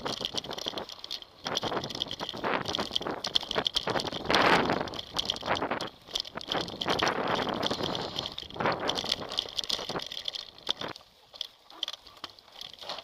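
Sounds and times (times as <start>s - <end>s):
bike rattling and clicking: 0.0s - 13.0s
tyre and wind noise: 0.0s - 13.0s.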